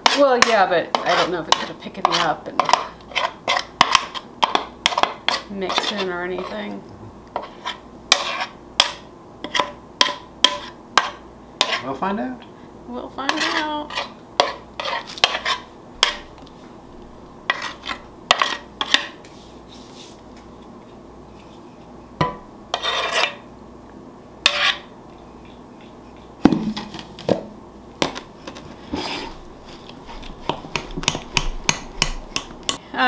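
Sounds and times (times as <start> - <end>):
utensil scraping metal pan: 0.0 - 6.7, 7.4 - 12.0, 13.2 - 16.3, 17.5 - 19.2, 22.7 - 23.5, 24.4 - 26.3, 28.9 - 30.8.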